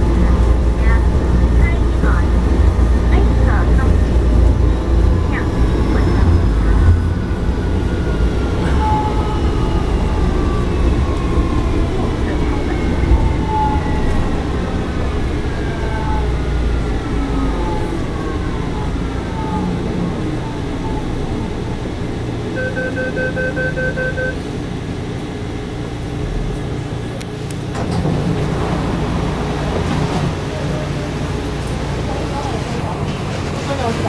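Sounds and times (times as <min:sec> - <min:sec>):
metro train drive whine: 0:00.0 - 0:34.0
short electronic beeps: 0:22.6 - 0:24.4.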